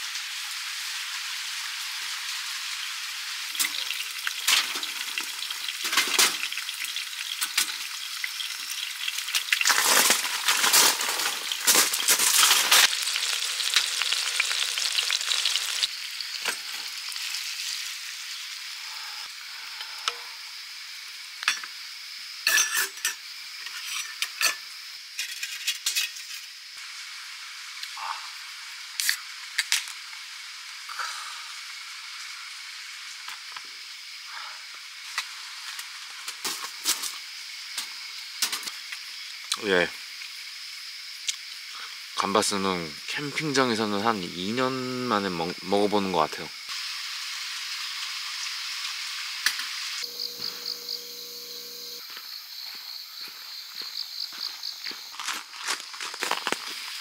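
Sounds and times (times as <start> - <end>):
food sizzling in frying pan: 0.0 - 53.3, 56.0 - 57.0
scraping and clattering in pan: 25.2 - 26.5.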